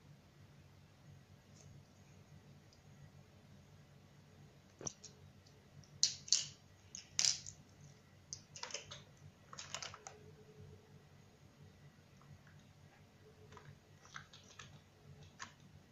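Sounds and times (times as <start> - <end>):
plastic toy clicking and clattering: 8.3 - 10.1.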